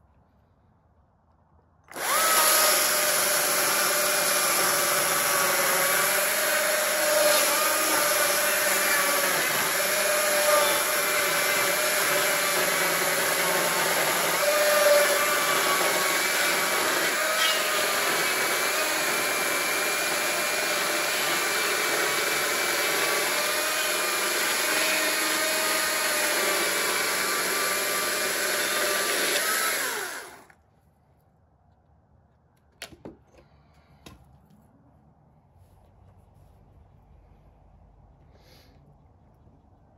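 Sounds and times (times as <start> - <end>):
chainsaw cutting log: 1.9 - 30.6.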